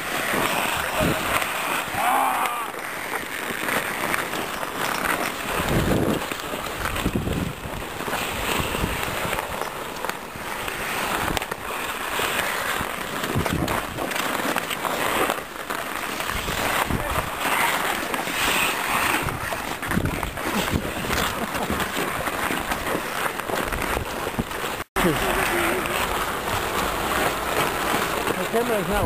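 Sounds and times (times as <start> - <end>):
wind rushing over microphone: 0.0 - 2.0, 5.5 - 9.4, 13.3 - 14.0, 16.3 - 17.4, 18.4 - 21.7
skate blades scraping on ice: 0.0 - 29.0.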